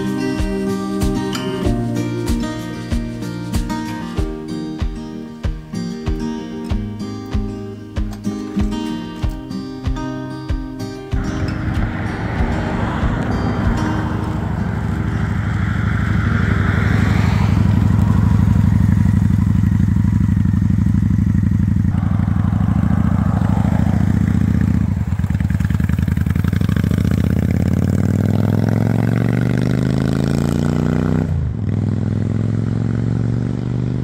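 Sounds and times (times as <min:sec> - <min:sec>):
motorcycle engine running: 0:10.6 - 0:34.0.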